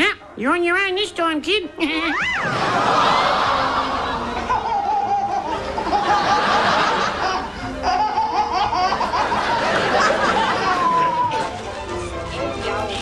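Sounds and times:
background music: 0:00.0 - 0:13.0
baby laughing: 0:03.7 - 0:11.5.

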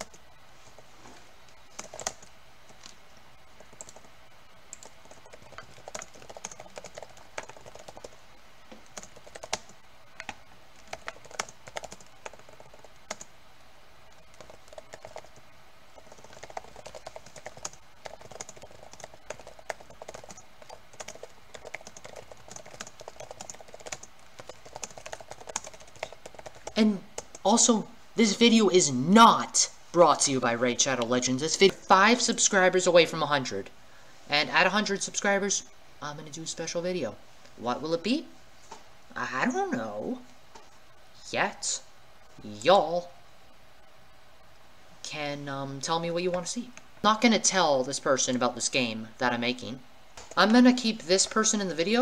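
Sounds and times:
computer keyboard typing: 0:00.0 - 0:00.2, 0:01.7 - 0:03.0, 0:03.6 - 0:04.1, 0:04.7 - 0:08.2, 0:08.8 - 0:13.3, 0:14.1 - 0:27.4.

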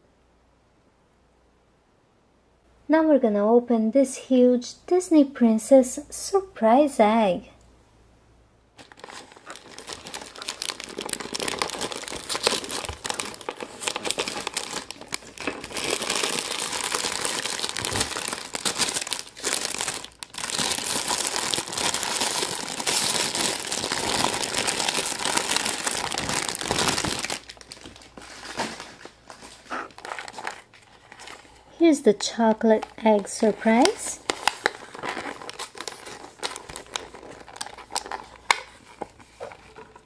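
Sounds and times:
foil wrapper crinkling: 0:08.8 - 0:40.0.

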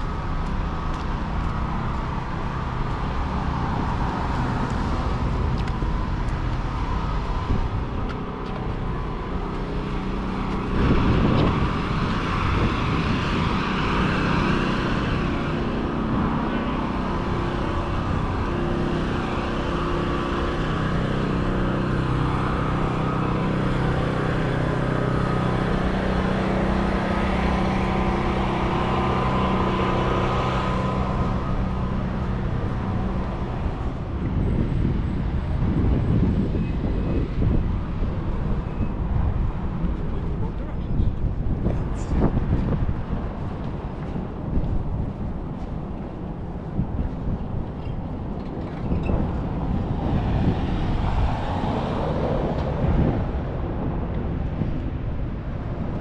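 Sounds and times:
engine hum: 0:00.0 - 0:56.0
vehicles passing: 0:00.0 - 0:56.0.

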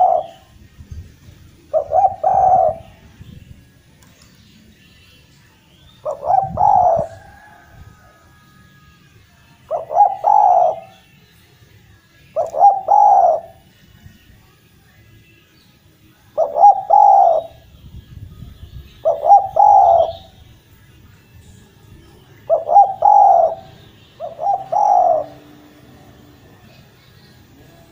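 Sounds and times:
dove cooing: 0:00.0 - 0:00.5, 0:01.7 - 0:03.0, 0:06.0 - 0:08.2, 0:09.6 - 0:11.0, 0:12.4 - 0:13.6, 0:16.4 - 0:17.6, 0:19.0 - 0:20.4, 0:22.4 - 0:26.7.

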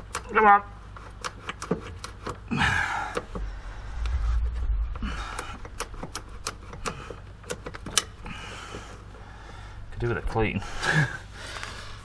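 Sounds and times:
low rumble: 0:03.1 - 0:07.2.

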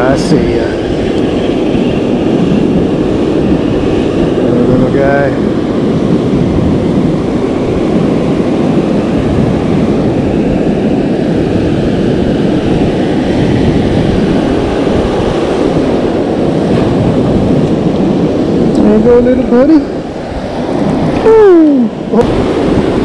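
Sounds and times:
ocean surf breaking: 0:00.0 - 0:23.0
wind: 0:00.0 - 0:23.0.

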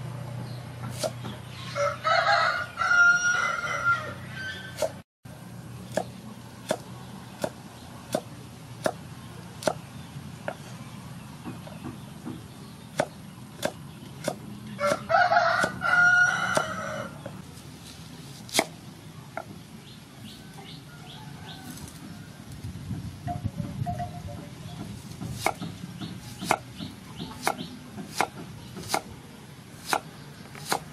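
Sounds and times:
rooster crowing: 0:01.7 - 0:04.8, 0:14.8 - 0:17.2, 0:20.3 - 0:22.4
cleaver chopping on wooden board: 0:05.9 - 0:09.8, 0:11.4 - 0:15.8, 0:18.5 - 0:18.8, 0:24.8 - 0:29.1, 0:29.8 - 0:30.9.

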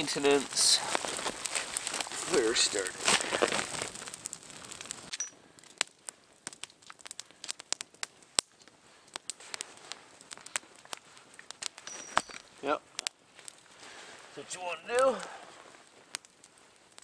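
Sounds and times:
campfire crackling: 0:00.0 - 0:17.0
fire popping: 0:00.0 - 0:17.0.

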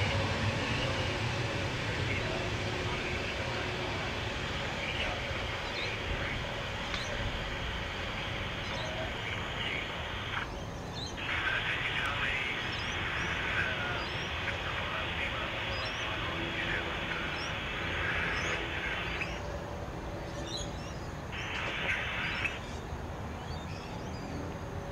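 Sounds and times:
birds chirping: 0:00.0 - 0:24.9
jet engines rumbling: 0:00.0 - 0:24.9.

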